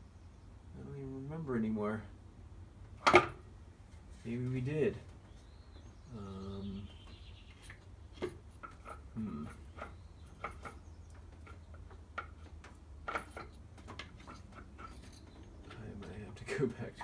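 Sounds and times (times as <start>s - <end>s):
short hum-like voice: 6.1s - 6.9s
light clicks and taps of metal parts: 7.5s - 16.9s.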